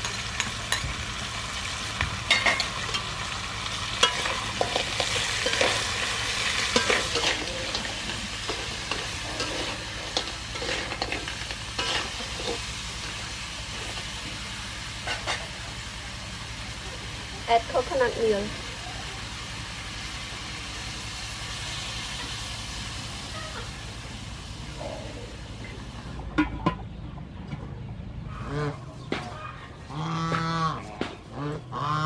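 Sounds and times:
crab sizzling in a wok: 0.0 - 26.2
metal ladle clinking and scraping pan: 2.3 - 3.1, 3.9 - 12.7.

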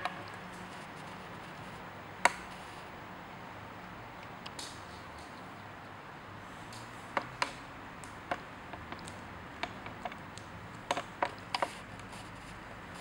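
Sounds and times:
parrot clicking and tapping on wood: 8.3 - 11.8.

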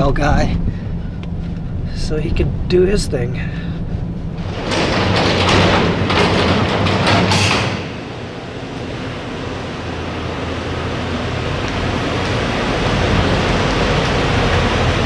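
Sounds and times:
steady rushing noise: 0.0 - 15.0
clattering rattle: 4.2 - 8.5
truck engine running: 7.8 - 15.0.

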